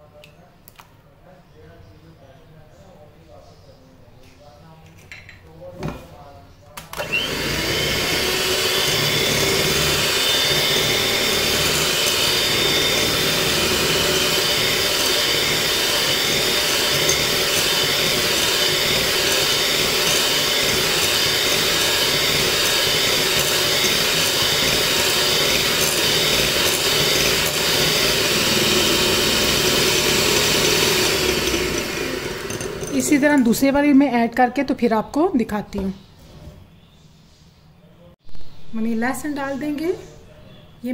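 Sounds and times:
electric hand mixer whirring: 0:07.0 - 0:33.6.

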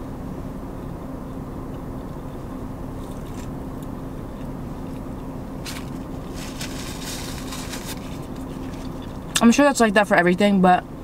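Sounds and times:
low hum inside car: 0:00.0 - 0:11.0.

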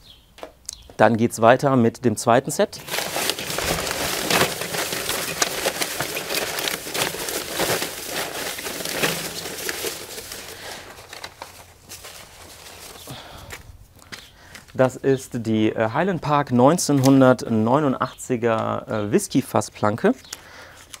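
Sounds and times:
paper slips rustling in metal bowl: 0:02.8 - 0:13.4.

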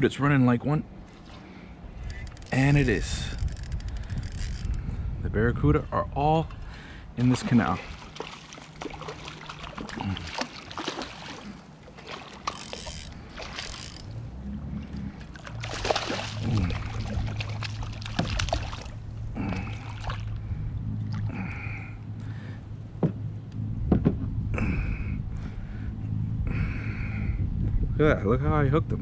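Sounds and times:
low steady hum: 0:00.0 - 0:29.0
water splashing: 0:07.2 - 0:21.6
kayak knocks and rattles: 0:07.9 - 0:14.1, 0:15.3 - 0:19.0.

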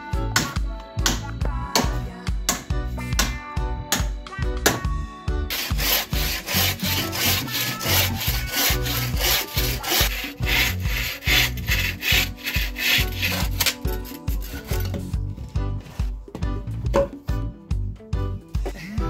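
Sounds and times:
saw cutting wood: 0:05.5 - 0:15.0.

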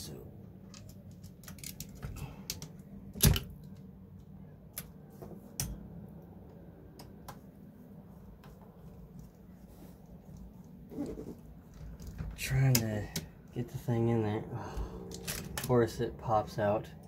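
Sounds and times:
plastic and metal parts clicking: 0:00.7 - 0:03.8.

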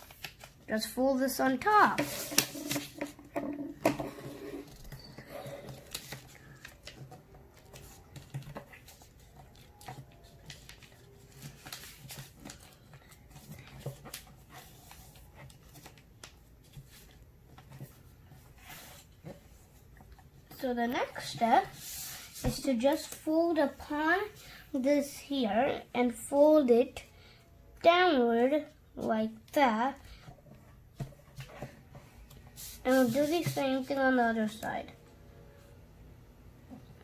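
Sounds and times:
paper rustling and crinkling: 0:00.0 - 0:01.0, 0:01.6 - 0:03.2, 0:04.0 - 0:20.1, 0:31.0 - 0:34.6.

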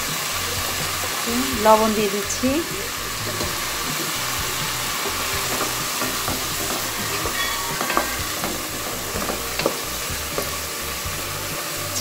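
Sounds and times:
chicken sizzling in hot oil: 0:00.0 - 0:12.0
wooden spatula scraping pan: 0:02.9 - 0:11.4.

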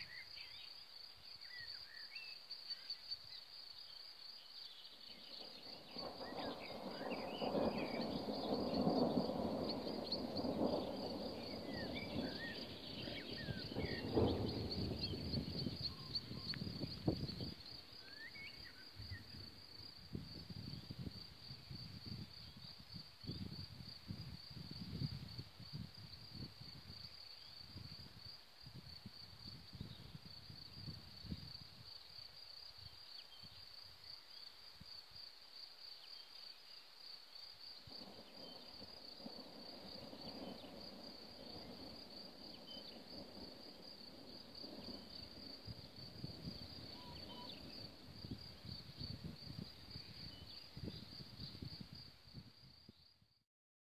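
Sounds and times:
cricket chirping: 0:00.0 - 0:53.4
bird call: 0:46.9 - 0:47.7.

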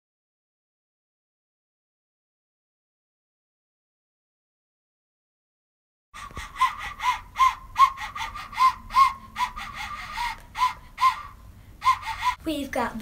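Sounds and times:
toy recorder toots: 0:06.3 - 0:12.4.

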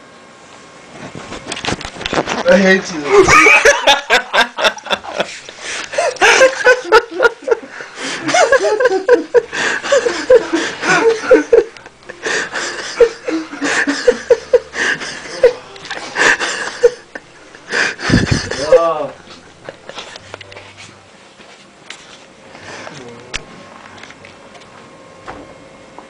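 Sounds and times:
stifled giggling: 0:03.1 - 0:20.2.

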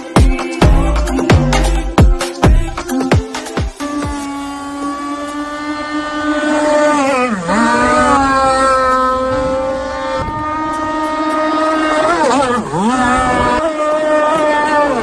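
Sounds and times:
boat engine high-pitched buzz: 0:00.0 - 0:15.0.

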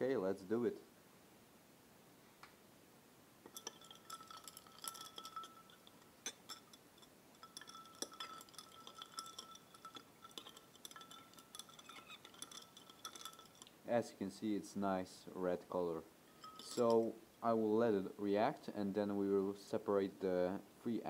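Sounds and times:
glass rod clinking in beaker: 0:03.5 - 0:13.8, 0:16.3 - 0:17.2.

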